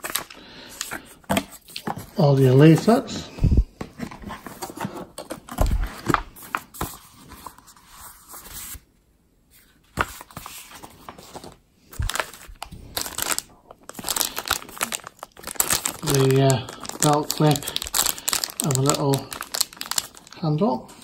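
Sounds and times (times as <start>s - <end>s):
paper and cardboard rustling: 0.0s - 3.2s, 3.8s - 8.9s, 9.6s - 20.4s
plastic bag crinkling: 12.0s - 20.6s.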